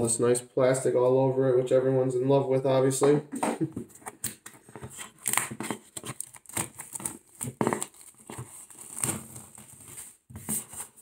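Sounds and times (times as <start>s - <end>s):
plastic wrap crinkling and tearing: 5.0s - 11.0s.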